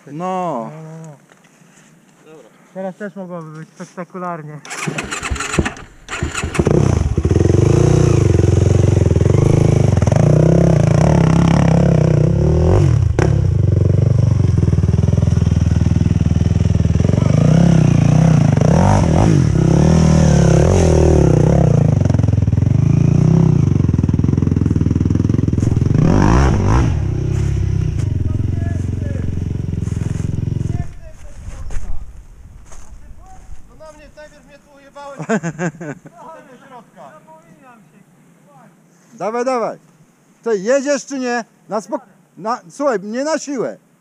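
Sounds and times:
quad bike engine idling and revving: 4.7 - 30.9.

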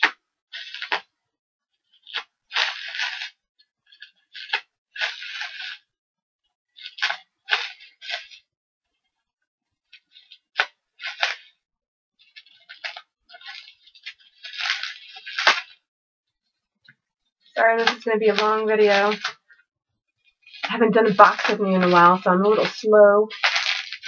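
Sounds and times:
plastic crinkling: 0.0 - 1.1, 1.8 - 5.9, 6.8 - 8.4, 9.9 - 11.6, 12.2 - 15.9, 17.5 - 19.6, 20.2 - 24.0
scissors snipping bubble wrap: 0.0 - 1.1, 2.0 - 3.4, 4.0 - 5.8, 10.3 - 11.5, 12.4 - 15.8, 23.3 - 24.0.

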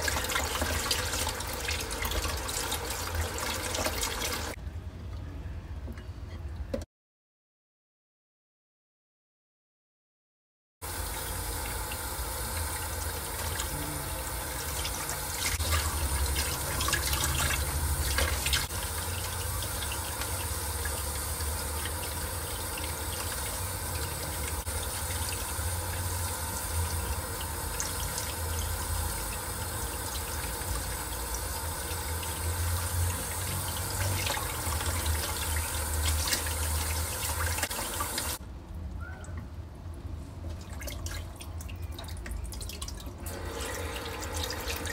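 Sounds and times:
faucet running into steel sink: 0.0 - 4.6, 10.9 - 38.4, 41.0 - 44.9
water dripping: 0.0 - 4.6, 39.2 - 44.9.

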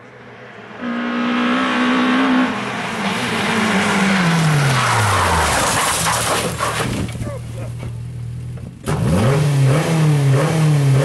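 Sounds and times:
rally car engine revving: 0.4 - 11.0
tyres skidding on loose surface: 2.0 - 9.0.

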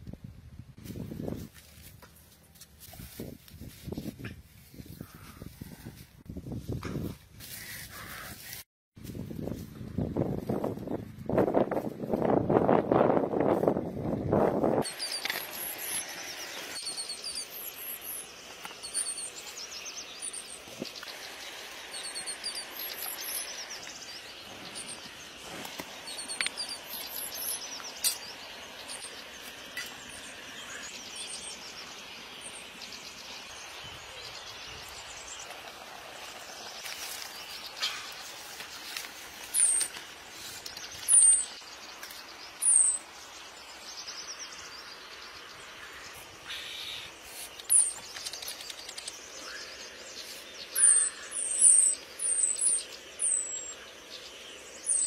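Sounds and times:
downward-sliding bird chirps: 14.8 - 29.2
insects hissing: 14.8 - 55.0
small birds chirping: 14.8 - 55.0.

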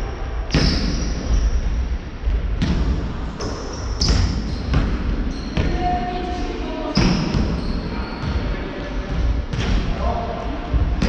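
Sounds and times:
sneaker squeaks on wooden court: 3.4 - 6.0, 6.9 - 8.6.

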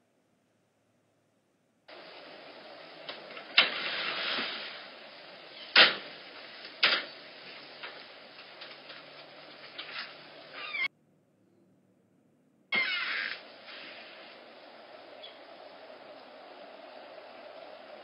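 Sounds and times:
microphone hiss: 0.0 - 18.0.

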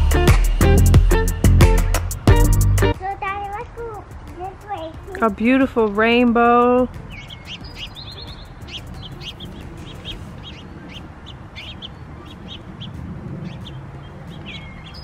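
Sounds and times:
songbirds chirping: 2.8 - 15.0
bird trill: 6.5 - 15.0.

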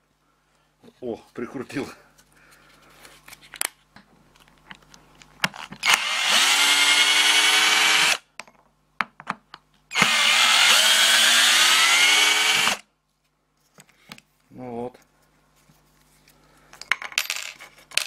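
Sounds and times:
cordless drill whining: 5.8 - 8.2, 9.9 - 12.8.

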